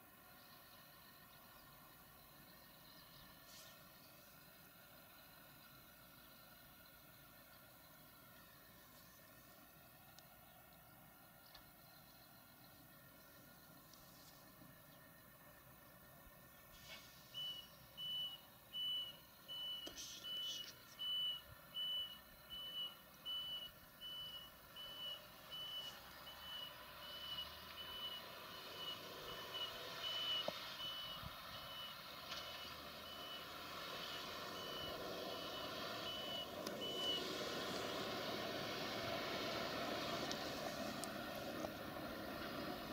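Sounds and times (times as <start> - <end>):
diesel engine running: 0.0 - 42.9
reversing alarm beeping: 17.2 - 37.8.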